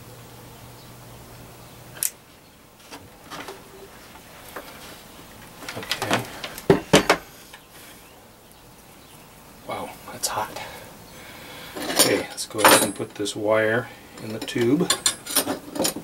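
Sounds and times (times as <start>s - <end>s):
tools clunking on wooden bench: 5.6s - 7.3s, 11.7s - 13.2s.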